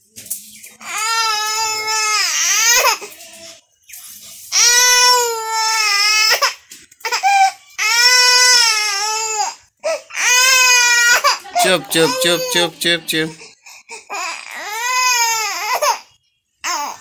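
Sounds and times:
baby crying in long wails: 0:00.8 - 0:03.2, 0:04.5 - 0:12.7, 0:14.1 - 0:16.1.

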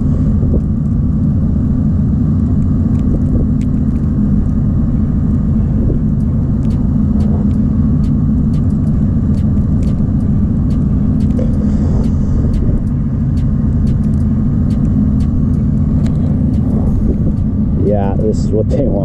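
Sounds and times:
wind buffeting microphone: 0:00.0 - 0:19.0
faint ticks: 0:06.0 - 0:17.5.

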